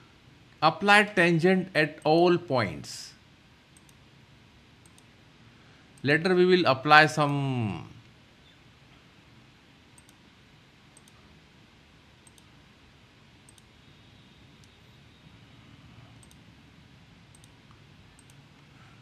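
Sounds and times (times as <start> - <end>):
quiet room hum: 0.0 - 19.0
computer mouse clicks: 3.7 - 4.0, 4.8 - 5.1, 10.0 - 10.2, 11.0 - 11.3, 12.2 - 12.5, 13.4 - 13.7, 16.1 - 16.5, 17.3 - 18.7.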